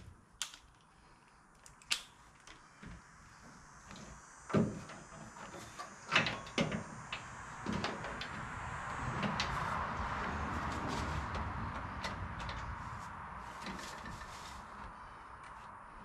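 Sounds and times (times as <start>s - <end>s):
faint steady noise: 0.0s - 16.0s.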